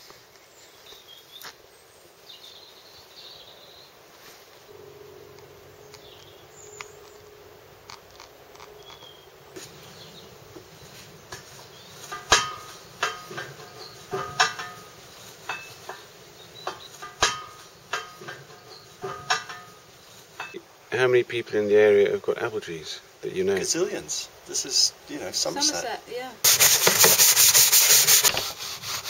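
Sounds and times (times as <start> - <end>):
bird chirps: 4.7 - 20.6
metallic clinks and knocks: 4.7 - 20.6.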